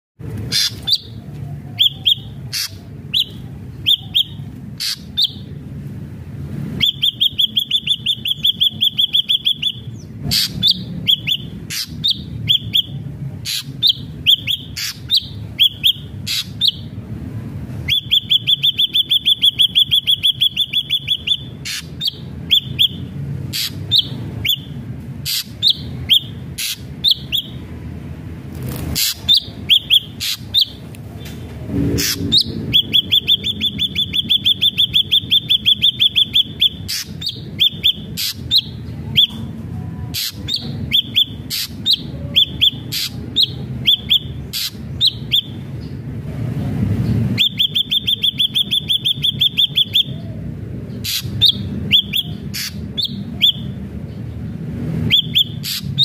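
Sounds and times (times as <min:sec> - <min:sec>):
steady low hum: 0:00.2 - 0:56.0
rapid bird trill: 0:00.4 - 0:05.6, 0:06.7 - 0:17.0, 0:17.8 - 0:27.7, 0:28.6 - 0:30.8, 0:31.8 - 0:39.5, 0:40.1 - 0:46.1, 0:47.0 - 0:54.4, 0:55.0 - 0:56.0
bird singing whistled notes: 0:01.8 - 0:05.5, 0:06.8 - 0:16.9, 0:17.8 - 0:27.6, 0:29.1 - 0:30.8, 0:32.1 - 0:39.4, 0:40.2 - 0:46.0, 0:47.3 - 0:50.4, 0:51.0 - 0:53.8, 0:55.1 - 0:56.0.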